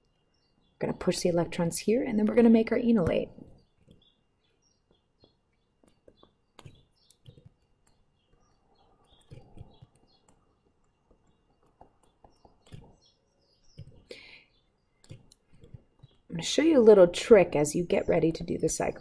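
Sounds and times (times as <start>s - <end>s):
stylus tapping on tablet screen: 4.8s - 14.2s, 15.0s - 16.3s.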